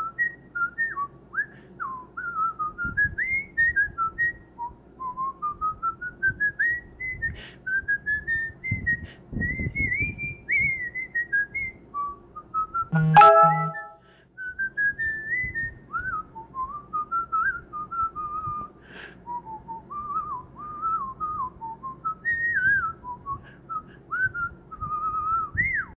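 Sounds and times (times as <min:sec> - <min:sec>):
person whistling a tune: 0:12.6 - 0:14.0, 0:19.3 - 0:26.0.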